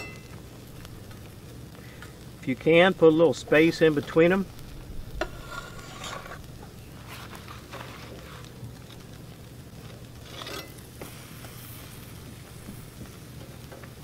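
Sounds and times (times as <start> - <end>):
fish sizzling on a grill: 0.0 - 14.0
metal spatula scraping a grate: 5.2 - 8.4, 10.2 - 10.8.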